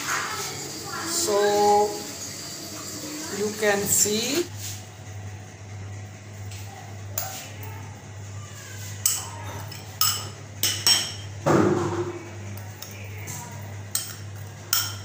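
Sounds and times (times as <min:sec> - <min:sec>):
dishes knocking and clinking: 0:09.1 - 0:12.2, 0:14.0 - 0:15.0.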